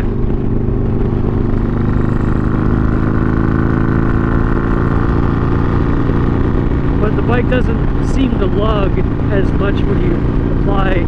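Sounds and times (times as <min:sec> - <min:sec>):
motorcycle engine at highway speed: 0:00.0 - 0:11.0.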